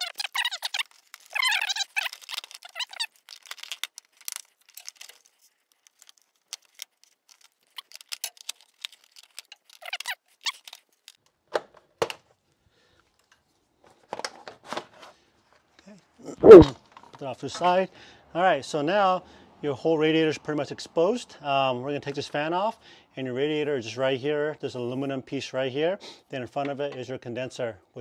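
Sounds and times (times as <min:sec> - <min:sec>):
plastic trim clicks and squeaks: 0:00.0 - 0:05.2, 0:06.1 - 0:11.2.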